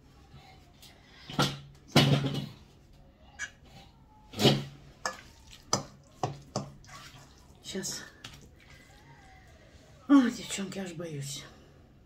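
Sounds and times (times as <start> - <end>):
kitchen things knocking and clattering: 1.2 - 2.7.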